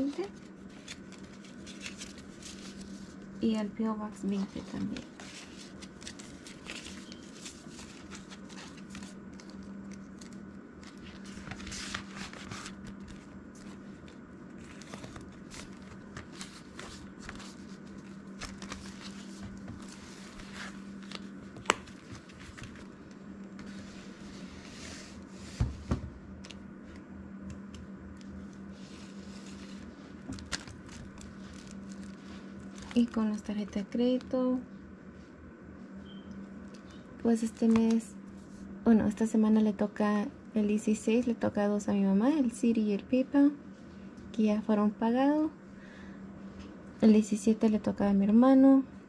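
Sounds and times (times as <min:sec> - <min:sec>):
banknotes and plastic rustling: 0:00.0 - 0:25.2, 0:28.4 - 0:34.2.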